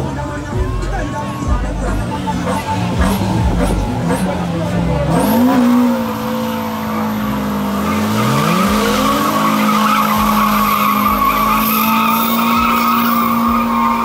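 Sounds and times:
car engine revving: 0.0s - 14.0s
tyre squealing on pavement: 6.3s - 14.0s.

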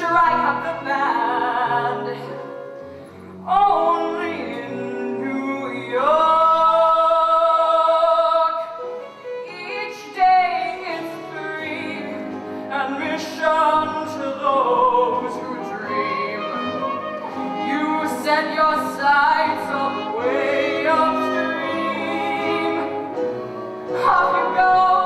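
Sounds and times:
pit orchestra playing: 8.8s - 25.0s.

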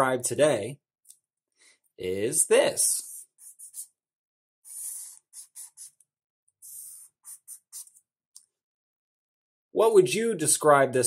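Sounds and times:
marker drawing on paper: 3.0s - 3.9s, 4.7s - 6.0s, 6.6s - 8.0s.

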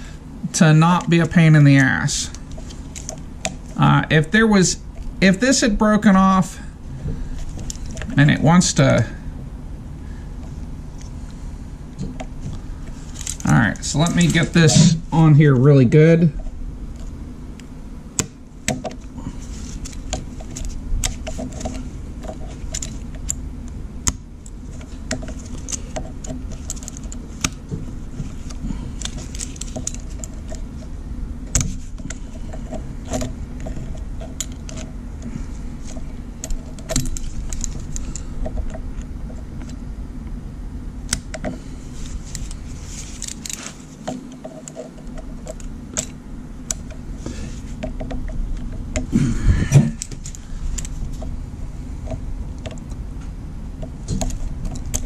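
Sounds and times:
steady low hum: 0.0s - 55.0s
pliers clicking and scraping on metal: 13.1s - 15.0s, 24.0s - 27.6s, 28.3s - 30.7s, 35.9s - 38.7s, 42.3s - 47.0s, 49.9s - 51.0s.

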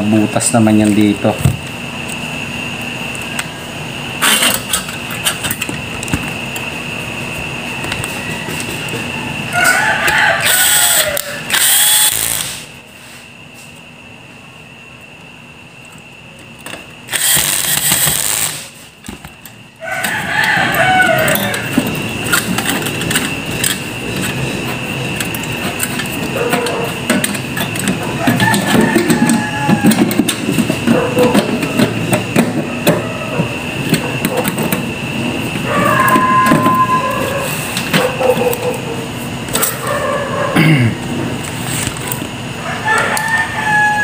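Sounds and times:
loud burst of noise: 4.2s - 6.1s, 10.4s - 12.8s, 17.0s - 18.9s
rooster crowing: 7.7s - 11.7s, 19.6s - 22.4s, 27.8s - 34.2s, 35.0s - 39.1s, 39.8s - 40.7s, 42.5s - 44.0s
whistle-like tone: 35.8s - 37.3s.

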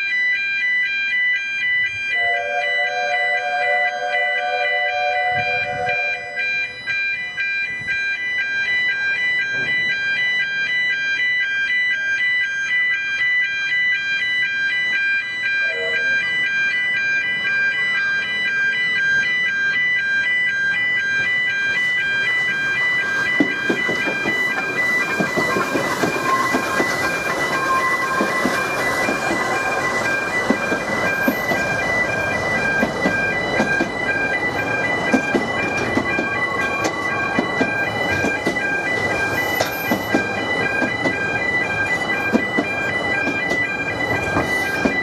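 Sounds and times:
level crossing alarm: 0.0s - 45.0s
train wheels on rails: 3.1s - 45.0s
steam locomotive chuffing: 21.7s - 45.0s.

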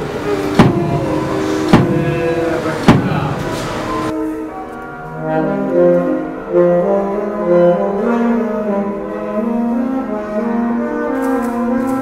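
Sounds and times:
brass instrument slow melody: 0.0s - 12.0s.

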